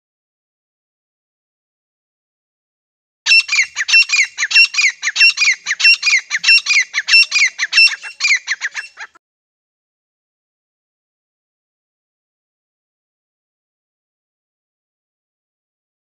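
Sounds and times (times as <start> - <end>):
francolin calling: 3.3 - 9.2.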